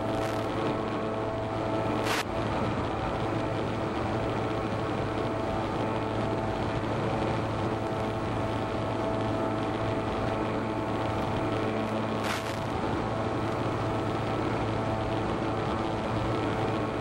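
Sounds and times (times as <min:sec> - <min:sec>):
model plane motor hum: 0:00.0 - 0:17.0
brief crackle: 0:02.0 - 0:02.3, 0:12.2 - 0:12.7
hiss of noise: 0:02.0 - 0:02.3, 0:12.2 - 0:12.7.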